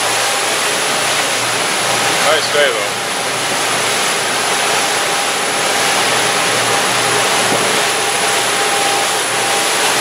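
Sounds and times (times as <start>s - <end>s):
boat engine drone: 0.0s - 10.0s
water rushing: 0.0s - 10.0s
wind: 0.0s - 10.0s.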